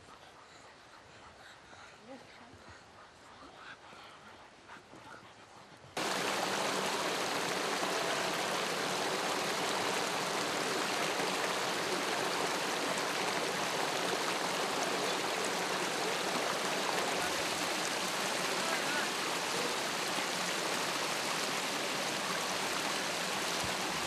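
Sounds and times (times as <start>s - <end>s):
stream rushing over stones: 6.0s - 24.0s.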